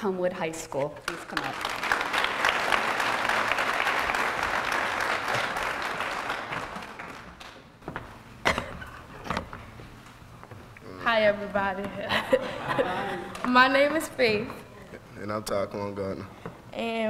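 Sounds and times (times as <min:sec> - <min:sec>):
audience applauding: 0:01.1 - 0:07.8.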